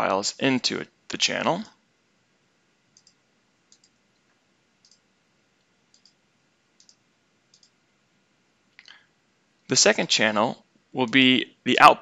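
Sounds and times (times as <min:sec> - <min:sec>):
computer mouse clicks: 0:02.9 - 0:06.2, 0:06.8 - 0:07.8.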